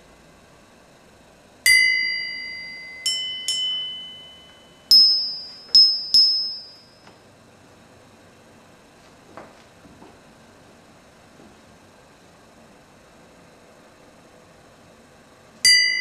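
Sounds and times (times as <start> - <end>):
small bells struck with metal rod: 1.7 - 7.1, 15.6 - 16.0.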